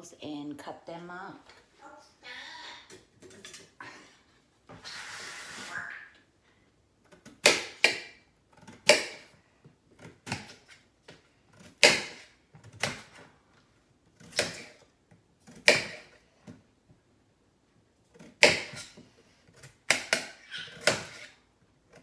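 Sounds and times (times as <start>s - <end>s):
knife cutting potatoes: 7.1s - 9.4s, 10.0s - 13.3s, 14.0s - 16.6s, 18.0s - 22.0s.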